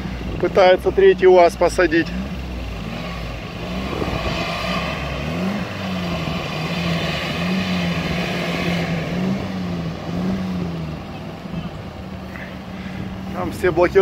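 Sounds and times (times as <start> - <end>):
engine revving in surges: 0.0 - 14.0.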